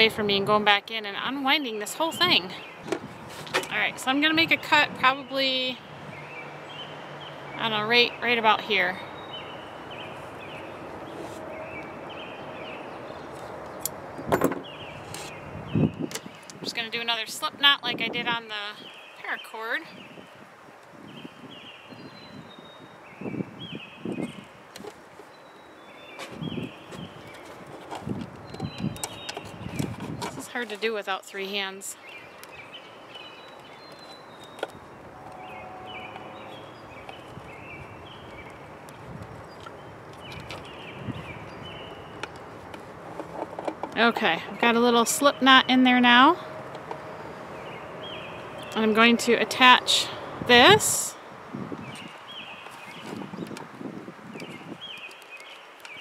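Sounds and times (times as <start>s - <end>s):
outdoor background hiss: 0.0s - 56.0s
small birds chirping: 1.0s - 20.4s, 21.0s - 56.0s
high bird chirps: 32.1s - 38.7s.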